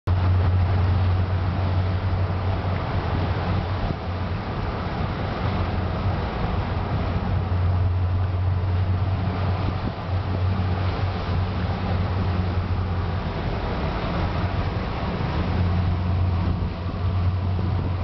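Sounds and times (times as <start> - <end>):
motorboat engine droning: 0.1 - 18.0
water rushing past hull: 0.1 - 18.0
wind on microphone: 0.1 - 18.0.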